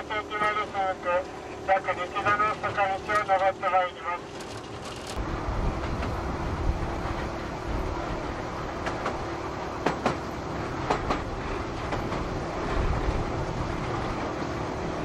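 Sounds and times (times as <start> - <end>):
rail cart rolling rumble: 0.0 - 15.0
wheels clicking over rail joints: 4.2 - 5.2.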